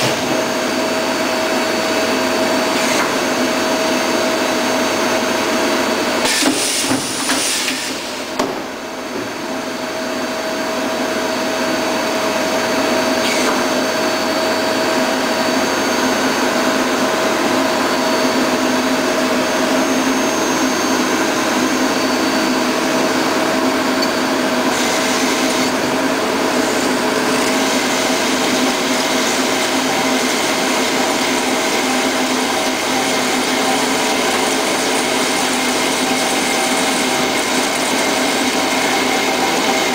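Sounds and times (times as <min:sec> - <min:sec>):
machine hum with whining tones: 0:00.0 - 0:39.9.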